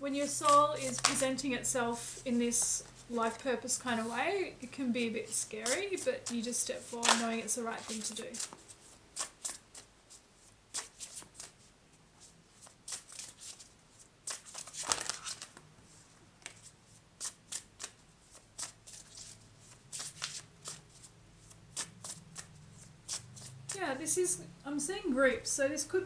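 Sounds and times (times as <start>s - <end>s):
cards shuffling and riffling: 0.2s - 1.3s, 5.3s - 15.7s, 16.4s - 23.8s.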